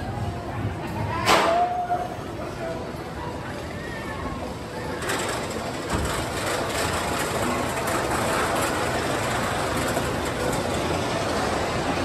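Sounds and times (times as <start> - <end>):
roller coaster lift rumble and clatter: 0.0 - 12.0.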